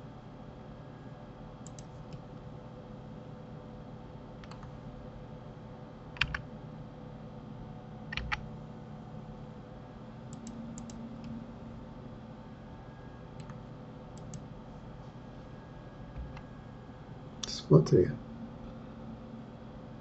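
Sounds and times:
steady low hum: 0.0 - 20.0
keyboard keys and mouse clicking: 1.6 - 2.2, 4.4 - 4.8, 6.2 - 6.4, 8.1 - 8.4, 10.3 - 11.4, 13.4 - 13.6, 14.2 - 14.4.

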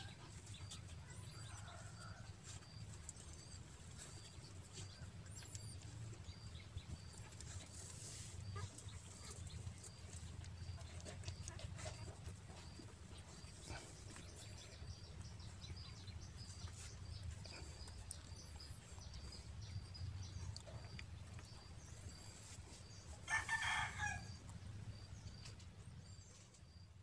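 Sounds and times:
faint high chirping: 0.0 - 27.0
faint low hum: 0.0 - 27.0
rooster crowing: 23.3 - 24.4.

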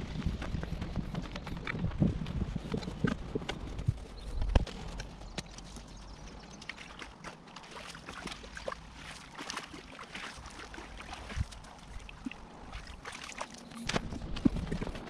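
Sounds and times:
wind rumbling on microphone: 0.0 - 7.2, 8.2 - 15.0
water trickling over leaves: 3.8 - 15.0.

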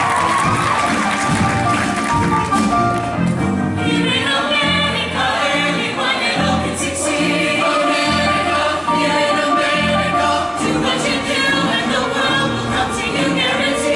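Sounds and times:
choir singing with accompaniment: 3.7 - 13.9.

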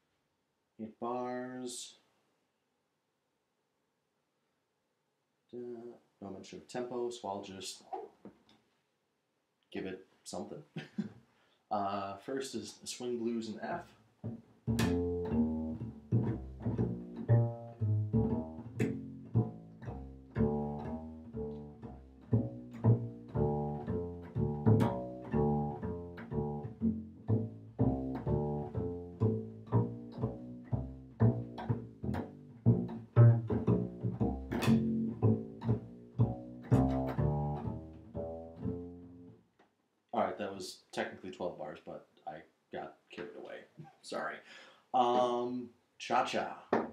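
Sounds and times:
finger-plucked bass walking line: 14.2 - 39.3.

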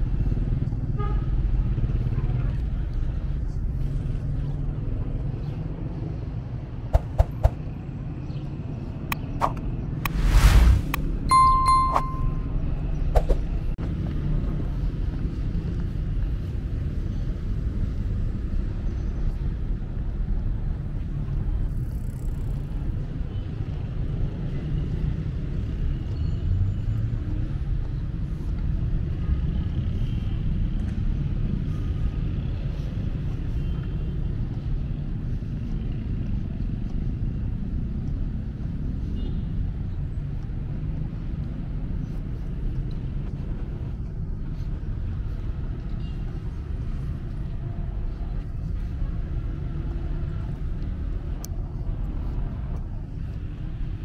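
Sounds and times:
distant road traffic rumble: 0.0 - 18.8.

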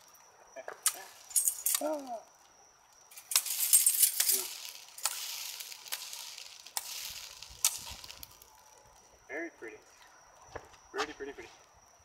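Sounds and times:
spinning ember poi crackling: 0.9 - 9.2.

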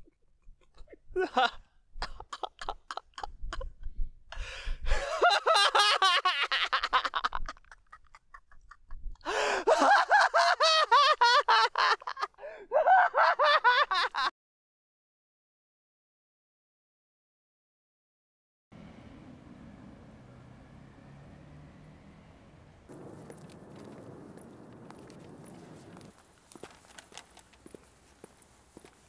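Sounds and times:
man laughing: 0.6 - 4.0, 4.9 - 14.3.

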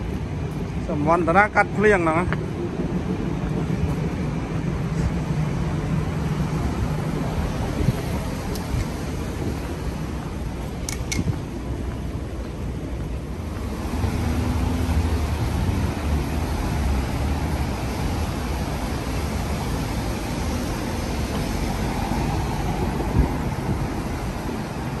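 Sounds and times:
cars driving on wet pavement: 0.0 - 25.0
vehicle passing close by: 13.6 - 18.5.

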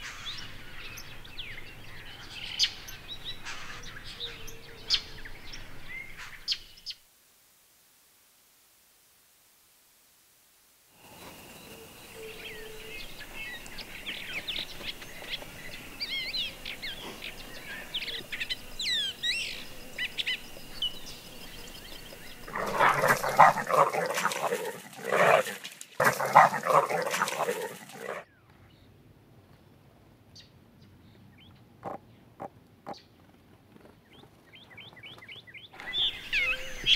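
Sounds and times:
birds chirping: 0.0 - 7.0, 11.0 - 28.8, 34.0 - 36.9
peccary grunting calls: 22.5 - 28.2.

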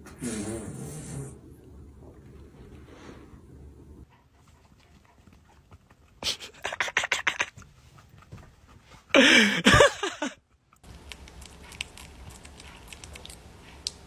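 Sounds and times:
dog panting: 4.0 - 9.3.

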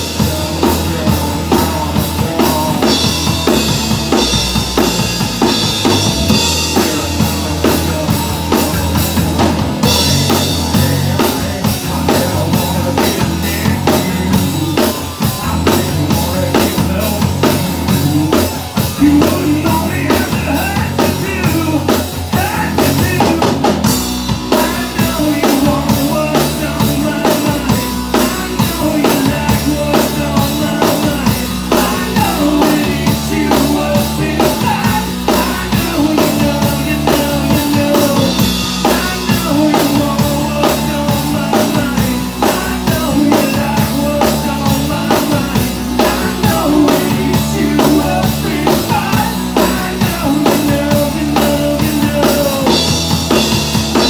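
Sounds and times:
bass guitar: 0.0 - 54.0
drum kit beat: 0.0 - 54.0
electric guitar: 0.0 - 54.0.

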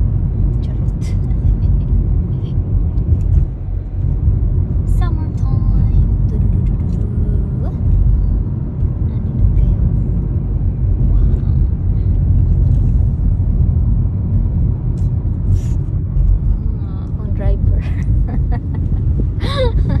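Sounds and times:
car engine and road noise: 0.0 - 20.0.

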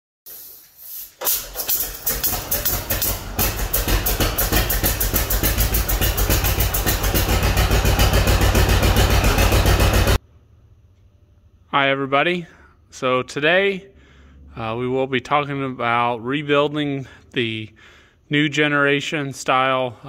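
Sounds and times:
tractor engine starting: 1.1 - 10.2.

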